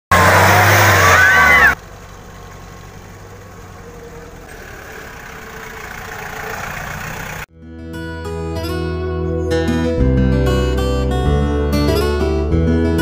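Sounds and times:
engine running on muddy track: 0.1s - 7.5s
voices calling out: 0.1s - 7.5s.

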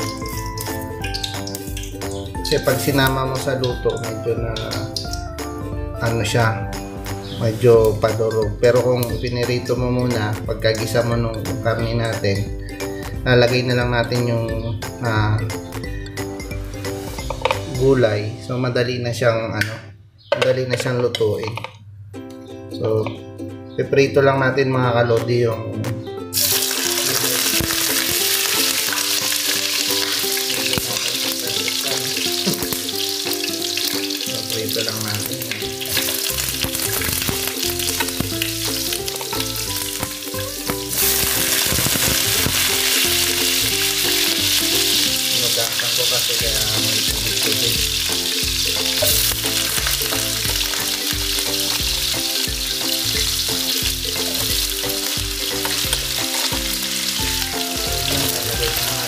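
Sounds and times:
vegetables sizzling in hot oil: 0.0s - 5.3s, 26.4s - 59.0s.

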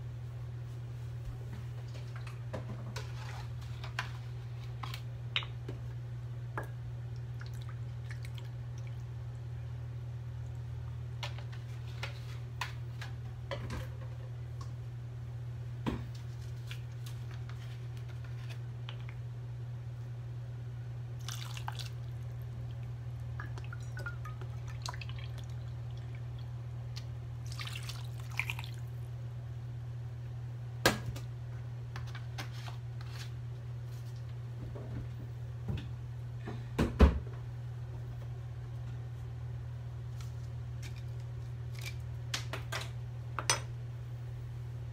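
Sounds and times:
steady low hum: 0.0s - 44.9s
vinegar pouring into cup: 21.2s - 22.0s.

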